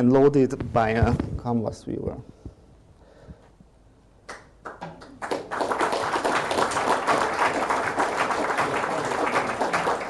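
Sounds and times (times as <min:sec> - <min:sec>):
audience applauding: 0:04.6 - 0:10.0.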